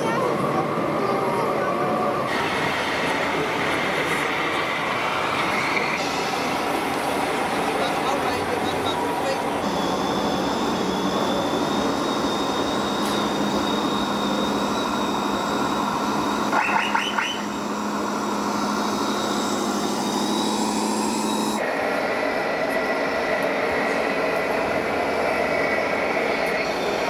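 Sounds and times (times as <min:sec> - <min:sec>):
hall noise: 0:00.0 - 0:27.0
model truck motor drone: 0:02.3 - 0:27.0.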